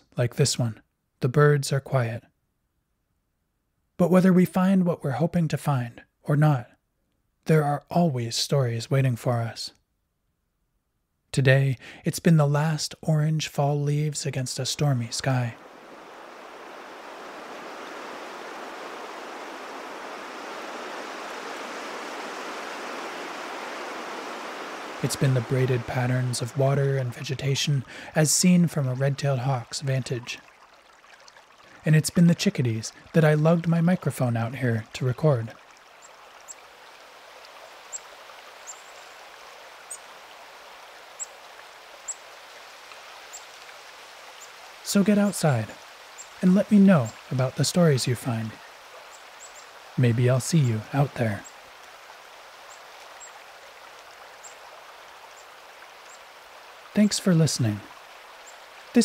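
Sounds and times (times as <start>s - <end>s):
river water rushing: 15.1s - 59.0s.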